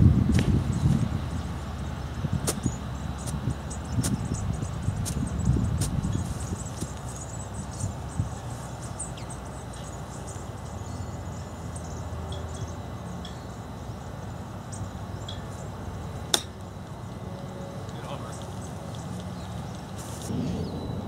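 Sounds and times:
outdoor background noise: 0.0s - 21.0s
golf club striking ball: 16.3s - 16.6s.

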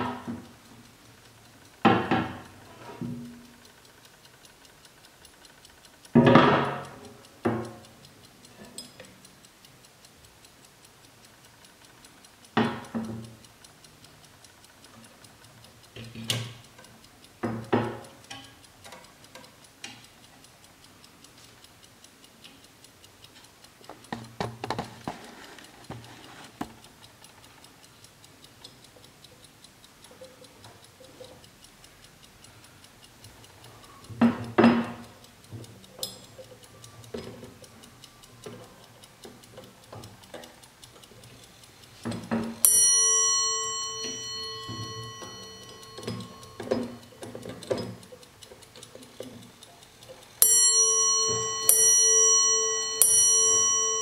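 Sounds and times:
mantel clock ticking: 0.0s - 54.0s
clicks and knocks of clock housing: 1.8s - 3.5s, 6.1s - 8.0s, 12.5s - 13.5s, 15.9s - 20.2s, 23.9s - 27.0s, 34.0s - 36.4s, 42.0s - 49.5s, 50.4s - 54.0s
clock bell ringing: 42.6s - 47.1s, 50.4s - 54.0s.

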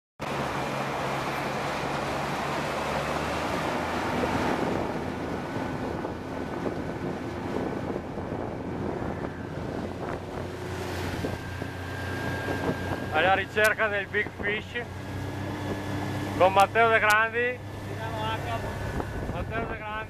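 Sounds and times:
outboard engine hum: 0.2s - 20.0s
water rushing: 0.2s - 20.0s
wind buffeting microphone: 0.3s - 20.0s.

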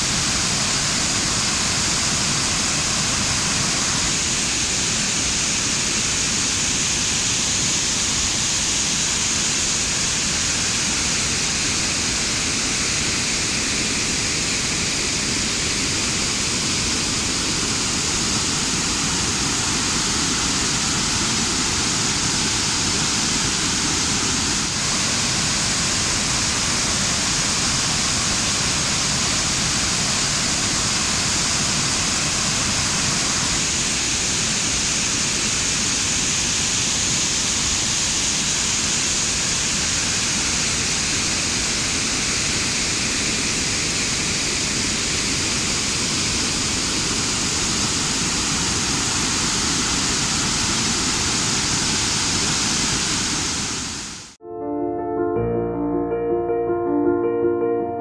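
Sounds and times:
waterfall and rushing floodwater: 0.0s - 54.4s.

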